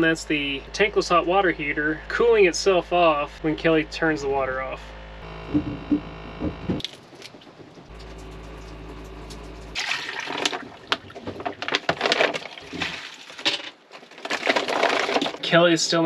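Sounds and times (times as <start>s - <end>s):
low steady hum: 0.0s - 13.3s
water running and splashing: 6.8s - 13.5s.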